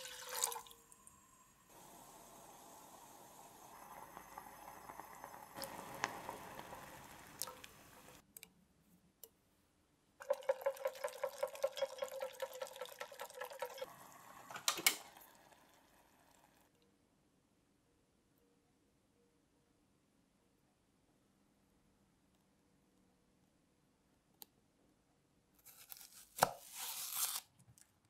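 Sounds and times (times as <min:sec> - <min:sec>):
sauce boiling and bubbling: 0:00.0 - 0:08.2, 0:10.2 - 0:16.7
whisk beating sauce in pan: 0:10.2 - 0:14.6.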